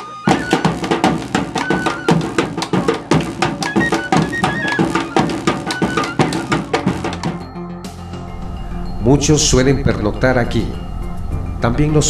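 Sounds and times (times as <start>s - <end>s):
high flute melody: 0.0s - 11.9s
dense drum beats: 0.0s - 12.0s.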